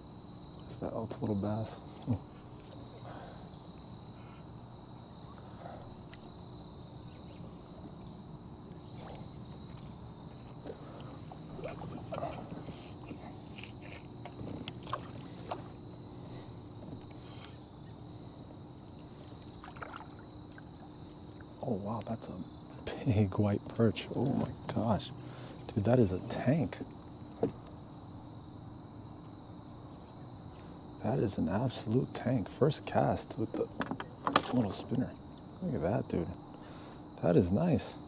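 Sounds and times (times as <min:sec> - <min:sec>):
crickets chirring: 0:00.0 - 0:38.0
water sounds: 0:10.3 - 0:15.8, 0:19.0 - 0:21.6.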